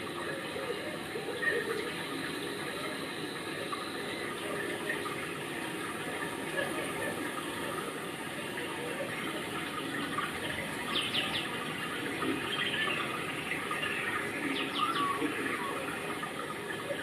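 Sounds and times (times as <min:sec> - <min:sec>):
running water: 0:00.0 - 0:17.0
small birds chirping: 0:10.6 - 0:11.7, 0:12.3 - 0:16.1.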